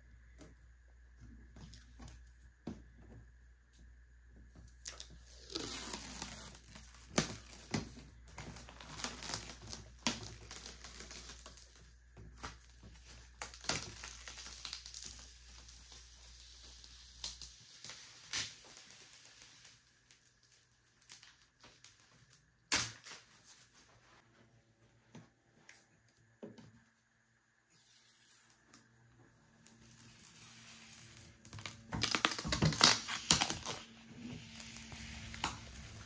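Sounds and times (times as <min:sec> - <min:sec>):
plastic film peeling crackle: 0:04.7 - 0:23.3, 0:29.6 - 0:36.0.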